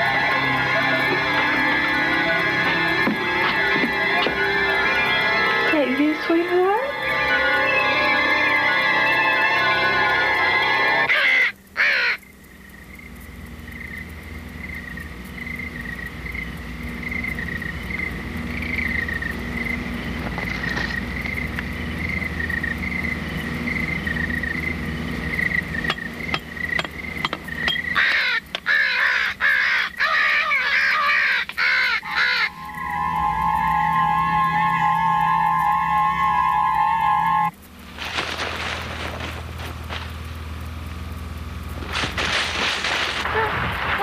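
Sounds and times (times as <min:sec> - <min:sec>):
thin wavering high tone: 0:00.0 - 0:11.1, 0:32.0 - 0:37.7
crows cawing: 0:11.1 - 0:12.3, 0:27.7 - 0:33.0.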